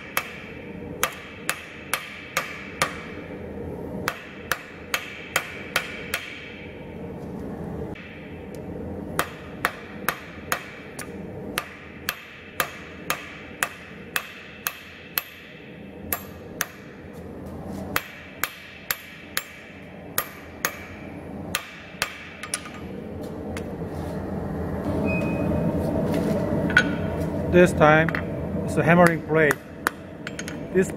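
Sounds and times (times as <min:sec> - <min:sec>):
hammer striking metal on anvil: 0:00.0 - 0:03.2, 0:04.1 - 0:06.6, 0:09.2 - 0:17.0, 0:18.0 - 0:22.9.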